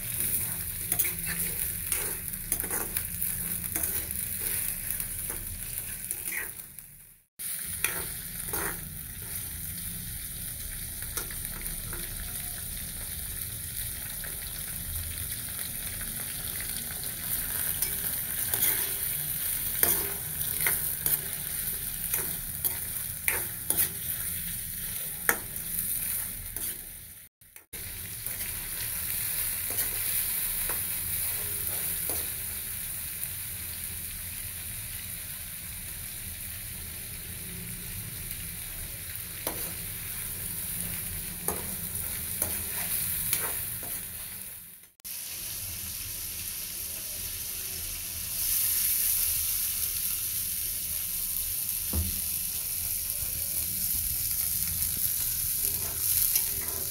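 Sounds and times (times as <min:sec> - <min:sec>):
meat sizzling in a wok: 0:00.0 - 0:56.9
spatula scraping a pan: 0:00.1 - 0:06.6, 0:07.8 - 0:09.5, 0:17.6 - 0:26.9, 0:41.5 - 0:44.2, 0:55.6 - 0:56.9.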